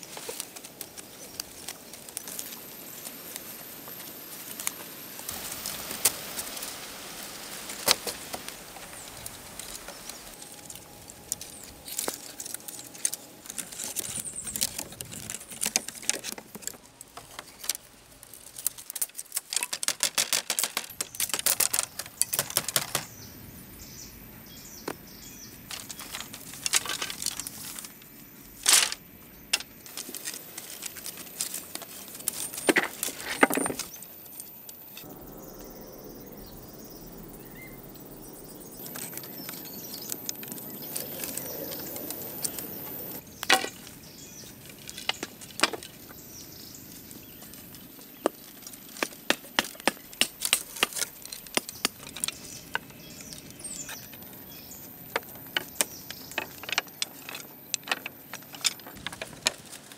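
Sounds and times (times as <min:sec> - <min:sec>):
wooden sticks clattering: 0:00.0 - 0:23.1, 0:25.6 - 0:35.1, 0:38.8 - 0:46.2, 0:46.8 - 0:59.9.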